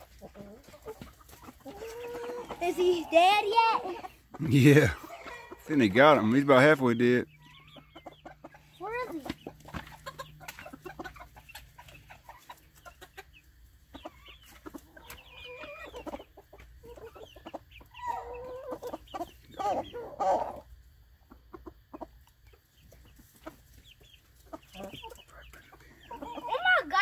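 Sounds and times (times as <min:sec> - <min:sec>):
chicken drawn-out calls: 0:00.0 - 0:27.0
chickens clucking: 0:00.0 - 0:27.0.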